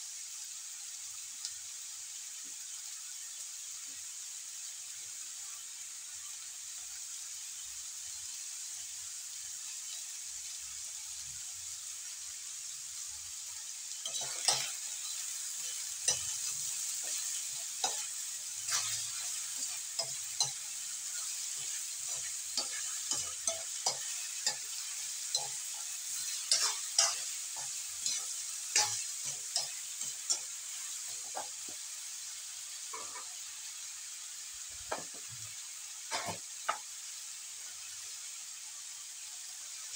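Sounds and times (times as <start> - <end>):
vegetables sizzling in a wok: 0.0 - 39.9
spatula scraping a wok: 13.9 - 31.8, 32.8 - 33.4, 36.0 - 36.8.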